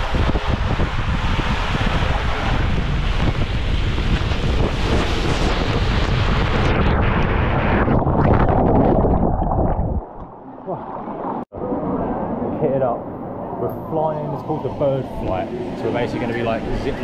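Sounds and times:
rushing water on water slide: 0.0s - 9.9s.

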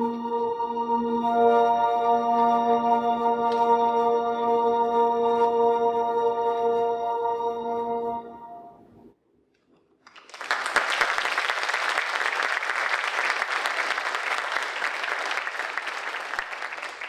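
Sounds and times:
audience applauding: 10.1s - 17.0s.

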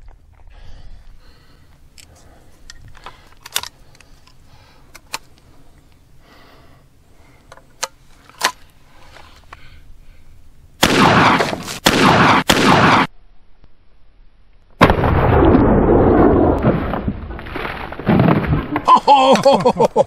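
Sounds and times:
shotgun metallic clicks: 1.9s - 5.9s
shotgun blast: 10.8s - 13.1s, 14.8s - 16.9s.

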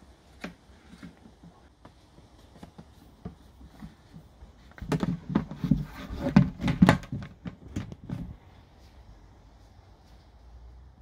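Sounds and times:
hollow plastic knocks and thuds: 2.6s - 8.4s.

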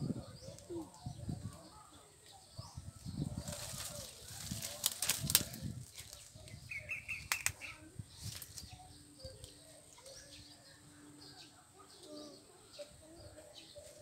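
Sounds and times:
plants and twigs rustling: 0.4s - 10.5s
sharp clicks: 7.2s - 7.6s.

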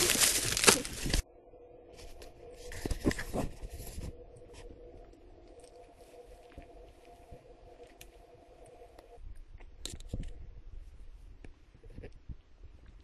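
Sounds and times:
food packaging rustling: 0.0s - 1.2s
faint steady hum: 0.0s - 13.0s.

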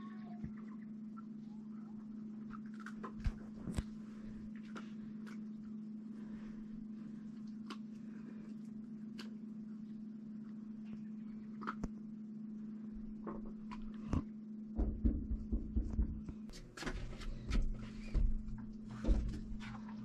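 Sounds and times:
steady low hum: 0.0s - 20.0s
hands thumping on glass door: 14.8s - 16.3s.

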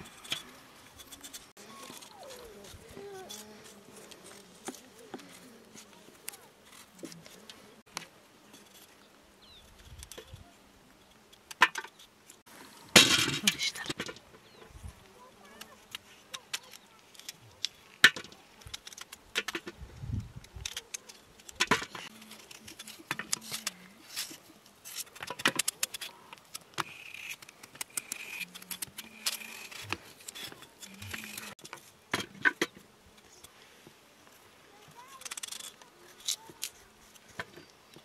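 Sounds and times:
knives scraping potato skins: 20.6s - 31.6s, 35.1s - 37.2s.

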